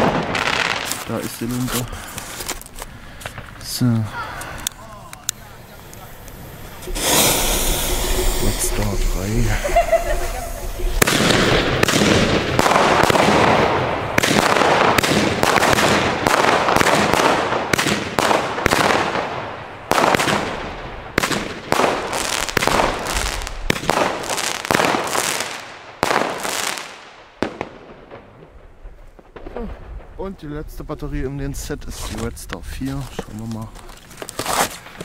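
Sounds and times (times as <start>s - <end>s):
firework battery shots: 0.0s - 2.6s, 4.4s - 30.2s
dense hiss: 0.5s - 12.5s.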